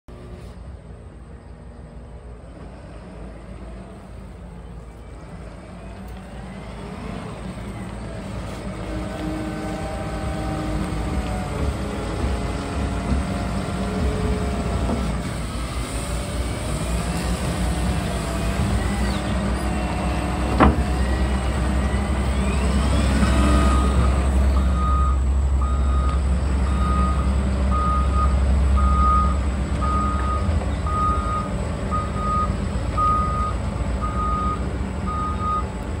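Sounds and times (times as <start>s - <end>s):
diesel engine pulling hard: 0.1s - 36.0s
reversing alarm beeps: 23.2s - 35.7s.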